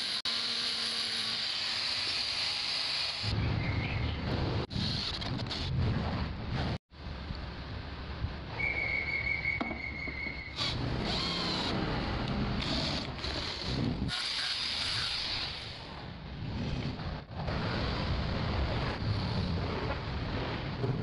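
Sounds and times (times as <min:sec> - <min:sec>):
drill boring through steel: 0:12.6 - 0:15.8.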